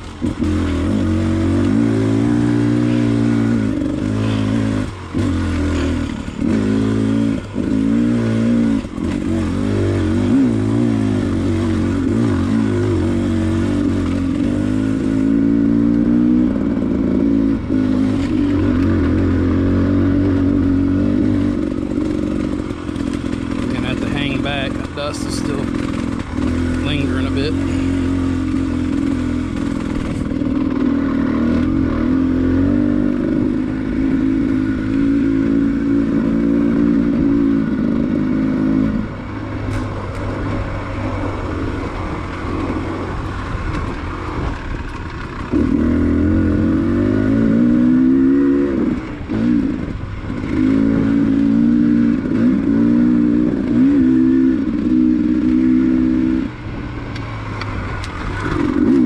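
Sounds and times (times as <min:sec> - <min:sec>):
dirt bike engine revving: 0:00.0 - 0:56.6, 0:57.4 - 0:59.0.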